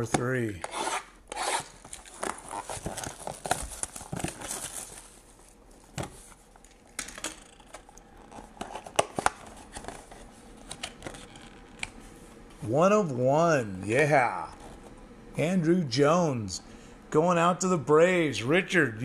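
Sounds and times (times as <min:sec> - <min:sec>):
shrink-wrap crinkling: 0:00.6 - 0:07.0
cardboard rustling: 0:01.6 - 0:06.6, 0:08.2 - 0:11.5.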